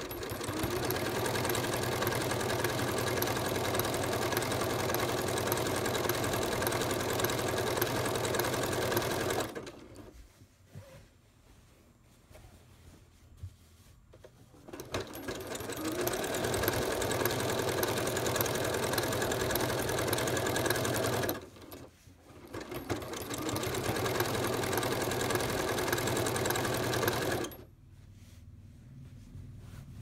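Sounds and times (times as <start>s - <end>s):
sewing machine stitching: 0.0s - 10.1s, 14.5s - 27.7s.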